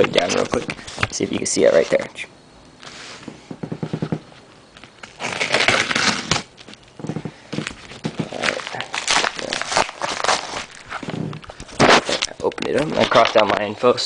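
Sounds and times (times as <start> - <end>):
paper envelope crinkling: 0.0 - 2.1, 4.7 - 13.7.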